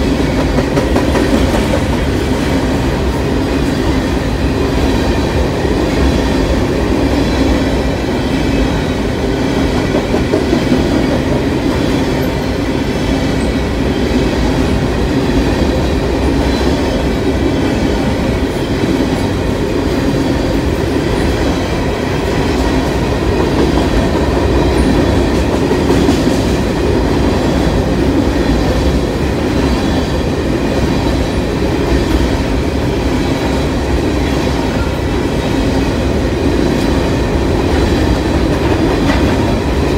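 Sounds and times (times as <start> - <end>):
train wheels on rails: 0.0 - 39.9.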